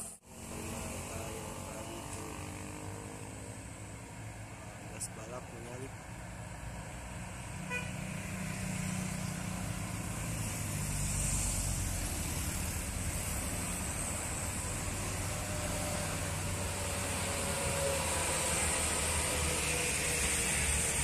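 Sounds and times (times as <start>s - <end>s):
diesel truck engines passing: 0.0s - 21.0s
motorcycles passing: 0.0s - 21.0s
short horn toot: 7.7s - 8.0s.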